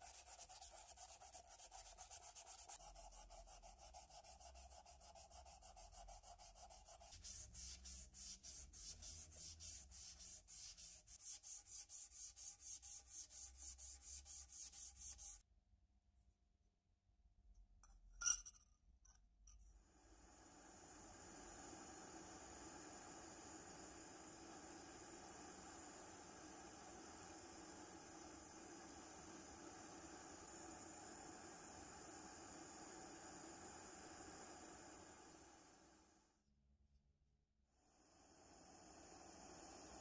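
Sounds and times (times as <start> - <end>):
sandpaper rubbing on brass: 0.0 - 15.4.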